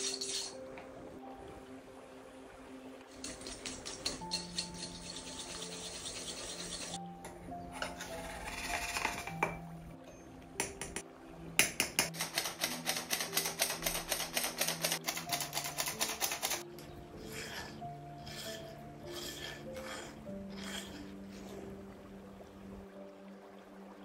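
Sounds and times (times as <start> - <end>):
background music: 0.0 - 24.0
metal spoon scooping powder: 3.2 - 7.0
whisk beating eggs in a bowl: 4.0 - 7.0.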